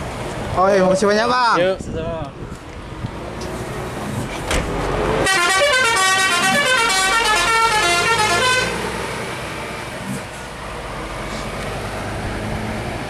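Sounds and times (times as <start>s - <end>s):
bus running: 0.0s - 13.0s
musical bus horn: 5.2s - 8.9s.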